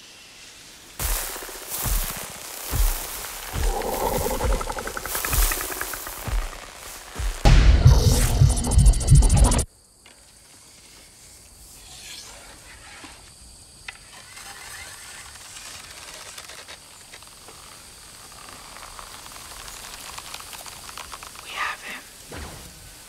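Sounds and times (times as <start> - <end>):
soft steady hiss: 0.0 - 7.5, 15.8 - 23.0
faint rustles and ticks: 1.3 - 7.4, 15.9 - 22.3
loud low throbbing: 7.2 - 9.7.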